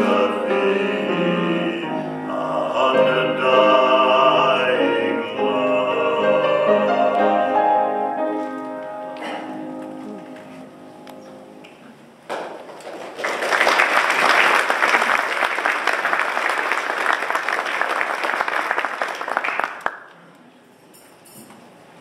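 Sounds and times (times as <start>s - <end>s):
audience applauding: 12.3s - 20.2s.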